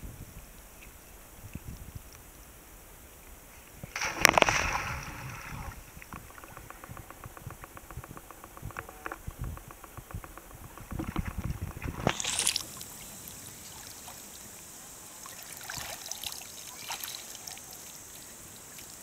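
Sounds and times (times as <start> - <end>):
flowing water hiss: 0.0 - 19.0
person swimming splashing: 4.0 - 5.8
small splashes and drips: 12.0 - 19.0.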